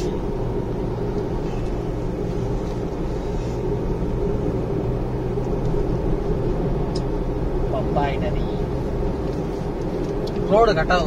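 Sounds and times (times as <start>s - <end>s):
car engine hum: 0.0s - 11.0s
tyre noise on road: 0.0s - 11.0s.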